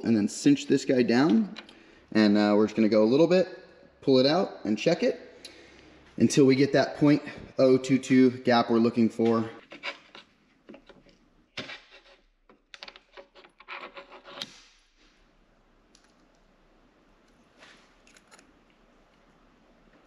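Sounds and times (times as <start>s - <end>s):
small metallic clicks and scrapes: 18.0s - 18.6s.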